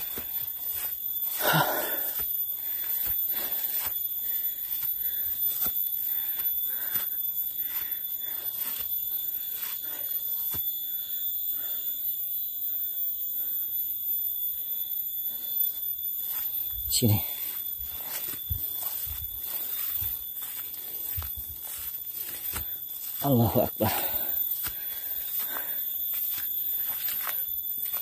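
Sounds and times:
footsteps on forest path: 0:00.0 - 0:10.8, 0:15.7 - 0:28.0
steady high-pitched whine: 0:00.0 - 0:28.0
heavy breathing: 0:01.3 - 0:08.7, 0:23.8 - 0:26.0.

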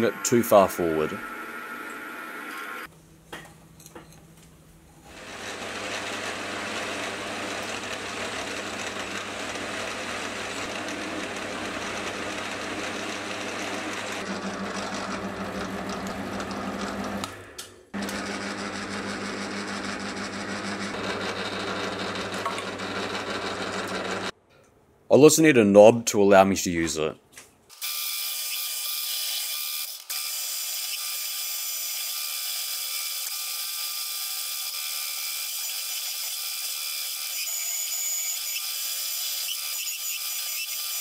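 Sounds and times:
metal lathe running: 0:05.1 - 0:17.2, 0:18.0 - 0:24.3.

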